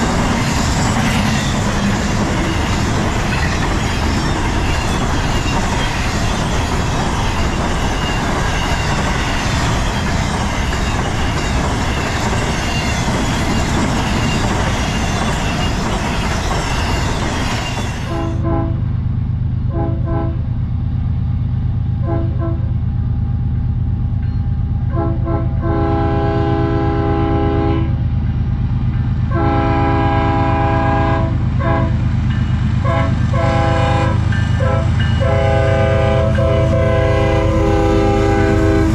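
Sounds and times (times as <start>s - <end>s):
locomotive air horn blasts: 18.1s - 18.8s, 19.7s - 20.4s, 22.0s - 22.7s, 24.9s - 28.0s, 29.3s - 32.0s, 32.8s - 38.9s
locomotive low rumble: 18.1s - 38.9s.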